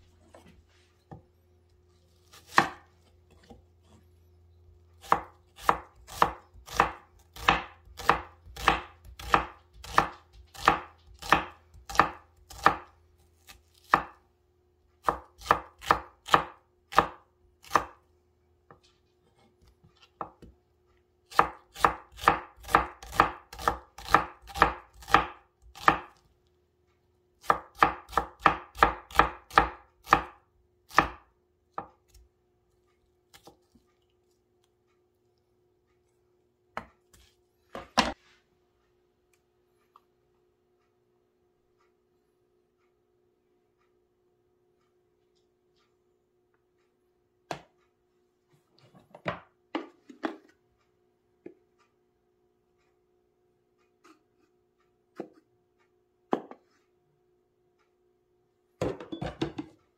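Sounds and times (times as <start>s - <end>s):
knife chopping on wooden board: 2.2s - 4.0s, 5.0s - 14.2s, 15.0s - 18.0s, 21.3s - 26.2s, 27.4s - 32.3s, 36.7s - 38.2s, 55.1s - 55.4s, 56.3s - 56.7s.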